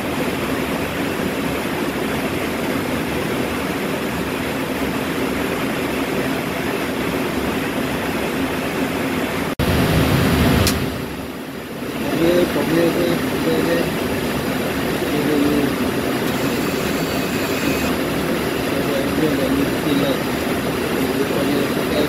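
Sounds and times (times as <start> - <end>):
outdoor rumble and hiss: 0.0 - 22.0
deep rumble: 9.6 - 11.3.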